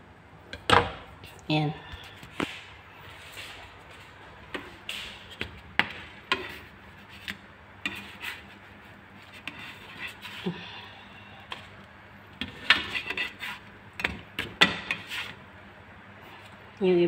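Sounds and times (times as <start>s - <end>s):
spatula scraping frying pan: 6.2s - 10.5s, 12.4s - 15.4s.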